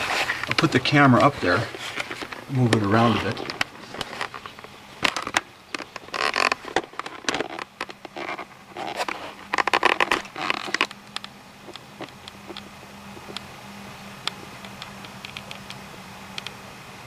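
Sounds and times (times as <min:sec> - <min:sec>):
camera handling scraping and rustling: 0:00.0 - 0:13.4
faint steady hum: 0:00.0 - 0:17.0
sharp clicks: 0:14.2 - 0:16.6.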